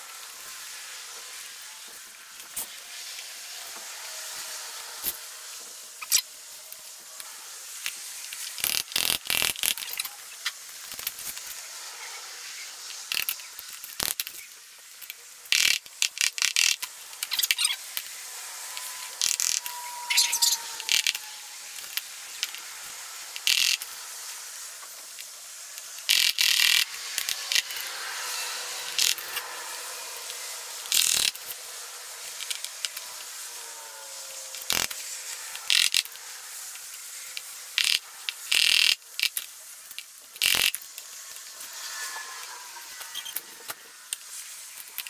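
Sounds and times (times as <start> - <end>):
short metallic scrapes: 17.2 - 22.8, 40.4 - 44.7.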